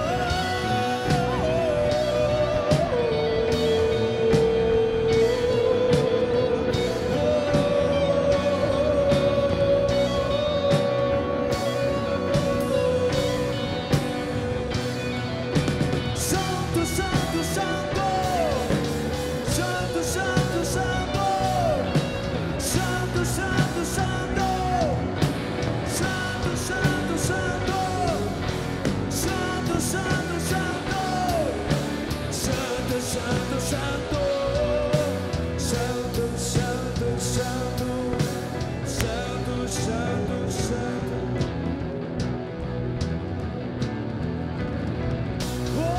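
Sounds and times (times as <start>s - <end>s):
voices singing and shouting: 0.0s - 42.1s, 45.6s - 45.9s
bass guitar: 0.0s - 45.9s
electric guitar: 0.0s - 45.9s
high sliding guitar line: 0.0s - 45.9s
drums with cymbal crashes: 0.2s - 40.0s.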